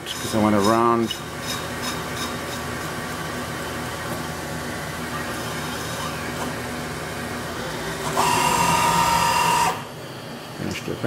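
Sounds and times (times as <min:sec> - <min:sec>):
lathe cutting metal: 0:05.3 - 0:09.9.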